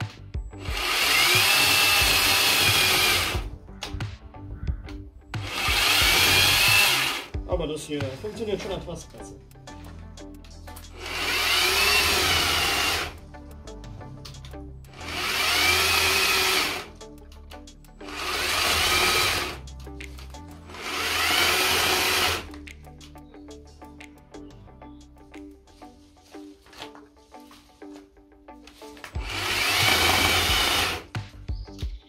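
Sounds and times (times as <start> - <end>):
electric chainsaw cutting branches: 0.6 - 3.5, 5.4 - 7.3, 10.9 - 13.2, 15.0 - 16.9, 18.1 - 19.6, 20.7 - 22.5, 29.1 - 31.1.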